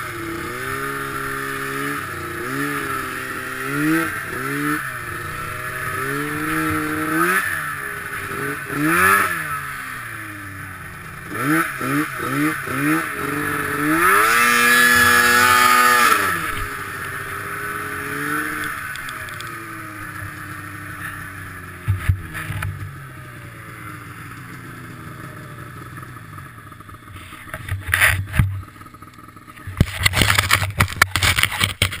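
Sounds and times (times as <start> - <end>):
snowmobile engine: 0.0 - 32.0.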